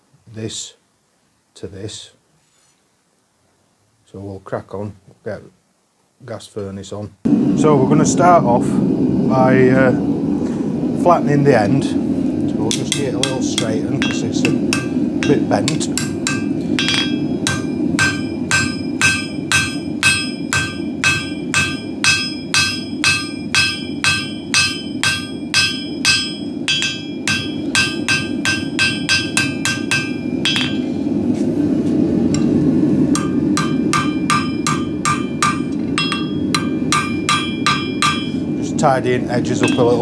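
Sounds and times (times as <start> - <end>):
gas forge roaring: 7.3 - 40.0
hammer ringing on anvil: 12.7 - 31.0, 33.1 - 38.6, 39.5 - 40.0.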